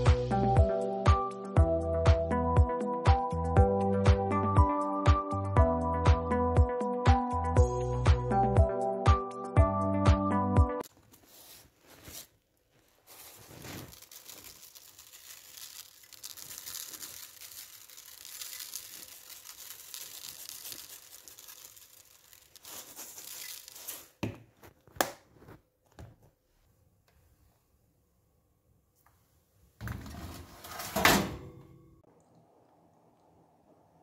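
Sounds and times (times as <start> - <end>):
plastic crinkling: 10.9 - 25.6
seeds rustling: 11.2 - 24.2.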